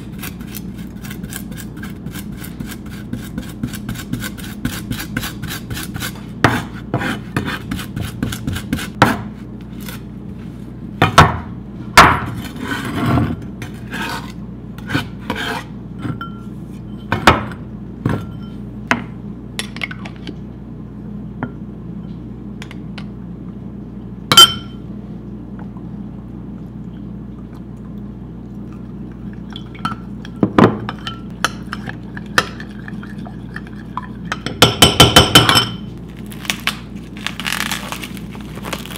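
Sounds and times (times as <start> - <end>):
utensil clinking glass bowl: 28.7 - 35.9.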